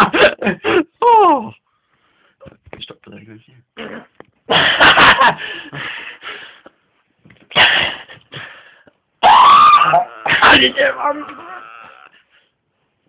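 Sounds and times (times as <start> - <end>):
person gasping and straining: 9.8 - 12.5.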